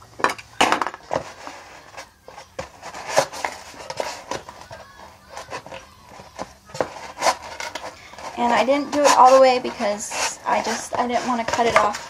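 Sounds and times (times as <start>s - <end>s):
craft knife scratching board: 1.1s - 12.0s.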